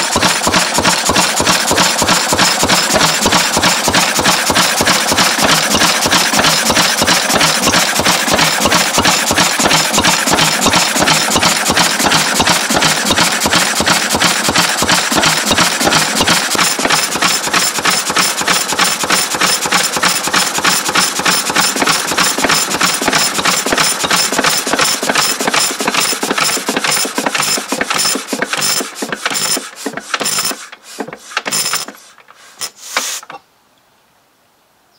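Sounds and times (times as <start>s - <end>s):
stationary engine running: 0.0s - 32.0s.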